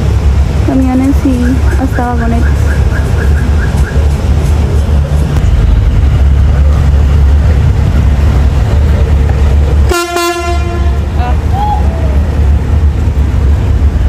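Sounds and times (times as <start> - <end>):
ferry engines rumbling: 0.0 - 14.0
short horn blast: 9.9 - 11.2.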